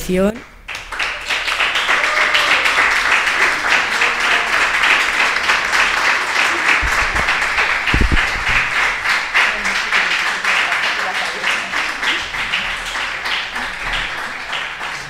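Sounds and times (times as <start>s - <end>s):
audience applauding: 0.6s - 15.0s
low thumps: 6.8s - 9.6s.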